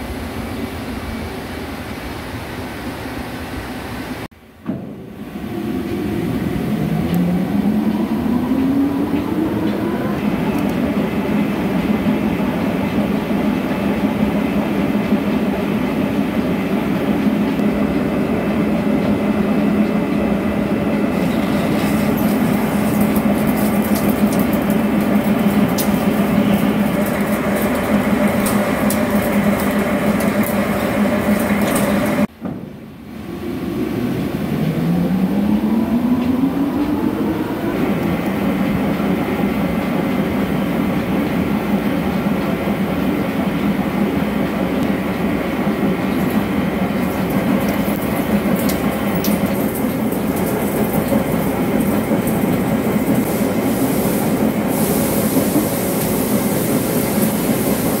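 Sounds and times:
rising machine whine: 5.1s - 11.2s, 33.1s - 38.5s.

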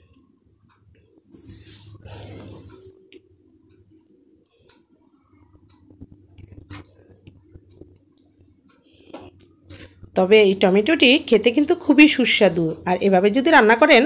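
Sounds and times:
steady low hum: 0.0s - 14.0s
hiss: 1.3s - 3.0s
faint clicks and light taps: 3.1s - 10.2s.

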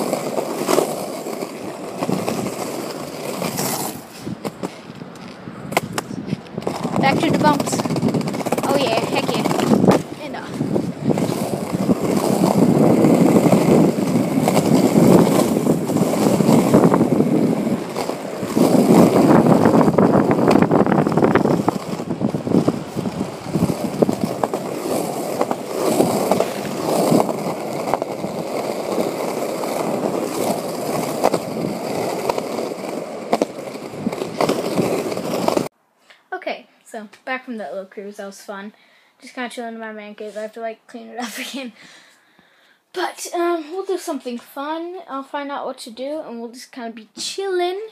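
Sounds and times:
skateboard wheels clacking over cracks: 0.0s - 35.7s
skateboard wheels rolling on concrete: 0.0s - 35.8s.

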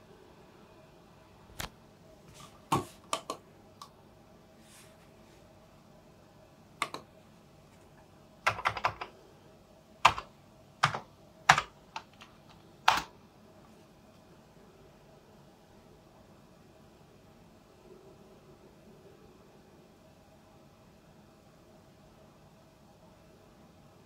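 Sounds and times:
computer keyboard typing: 3.1s - 3.4s, 6.8s - 7.1s, 8.4s - 9.2s, 10.0s - 13.1s.

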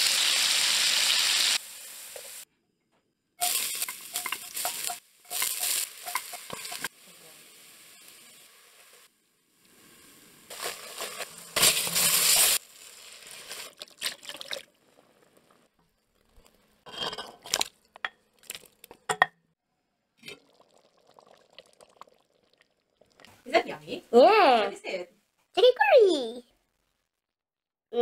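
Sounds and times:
spoons clinking and scraping pot: 3.4s - 6.9s, 10.5s - 12.6s, 16.3s - 19.3s
liquid poured into hot pot hissing: 20.4s - 23.2s.

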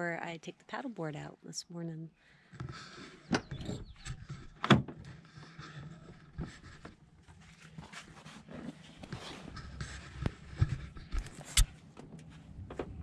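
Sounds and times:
sharp clicks and knocks: 2.6s - 5.2s
rustling and handling noise: 2.7s - 13.0s
truck door opening: 3.1s - 5.2s.

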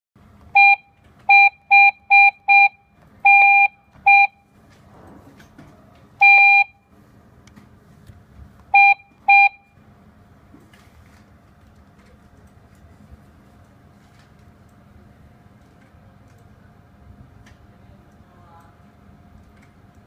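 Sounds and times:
alarm keypad beeps: 0.6s - 4.5s, 6.2s - 6.8s, 8.7s - 9.8s.

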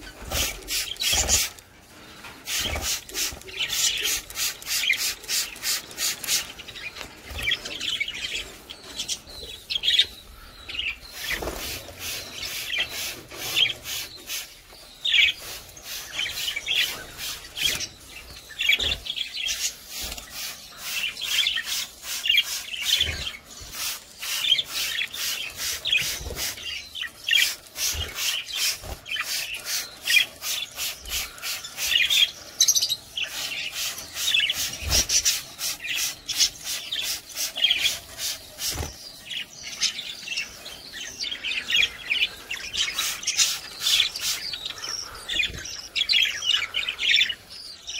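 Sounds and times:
birds chirping: 0.0s - 47.9s
spray bottle squirting water: 2.4s - 6.5s, 27.3s - 32.2s, 33.5s - 38.8s.

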